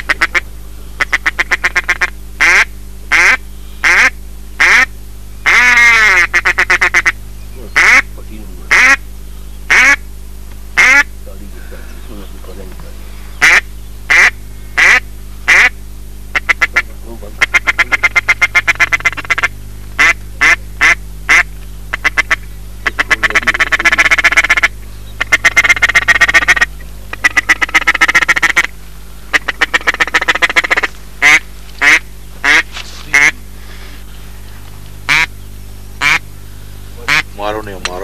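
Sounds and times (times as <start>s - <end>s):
duck call quacks: 0.0s - 0.4s, 1.0s - 7.2s, 7.8s - 8.1s, 8.7s - 9.0s, 9.7s - 10.0s, 10.8s - 11.1s, 13.4s - 28.7s, 29.3s - 34.0s, 35.1s - 35.3s, 36.0s - 36.2s, 37.0s - 37.4s.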